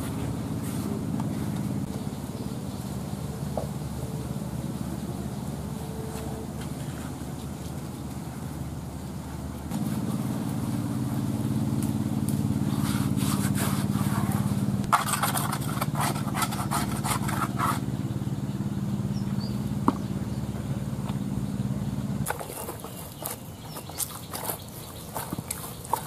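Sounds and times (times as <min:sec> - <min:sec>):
low engine hum: 0:00.0 - 0:26.0
hands scraping dough in plastic bowl: 0:12.8 - 0:17.9.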